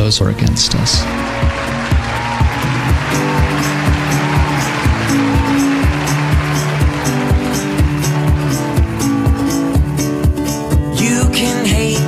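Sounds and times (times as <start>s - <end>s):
steady drum beat: 1.0s - 10.5s.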